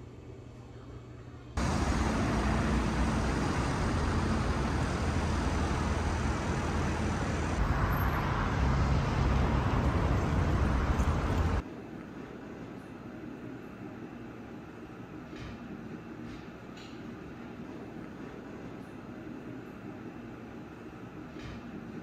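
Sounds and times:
city street traffic: 1.6s - 11.6s.

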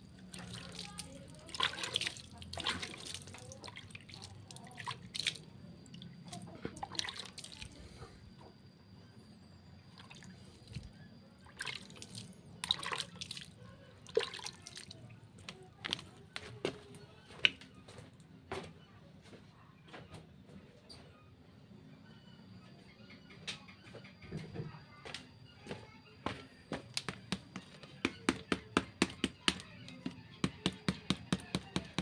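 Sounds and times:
water drops splattering on leaves: 0.3s - 5.4s.

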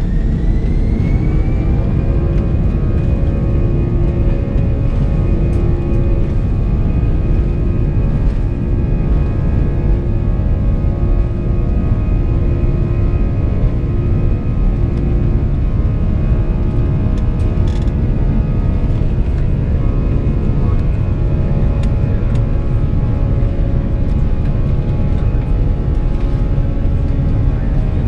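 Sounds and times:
aircraft rolling rumble: 0.0s - 28.0s
jet engine whine: 0.0s - 28.0s.

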